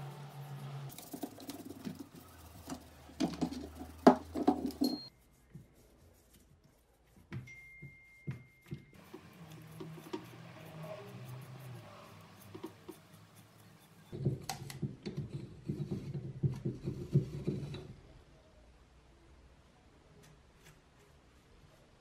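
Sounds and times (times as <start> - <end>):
toothbrush scrubbing metal: 0.0 - 7.4, 8.1 - 14.2.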